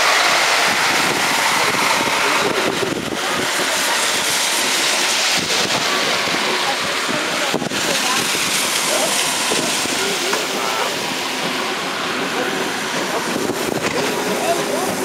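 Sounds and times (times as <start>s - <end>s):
steam train running noise: 0.0s - 15.0s
wind rushing over microphone: 0.0s - 15.0s.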